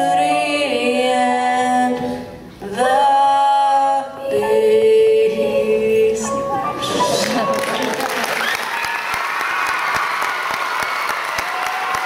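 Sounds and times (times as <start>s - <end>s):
woman and boy singing duet: 0.0s - 7.9s.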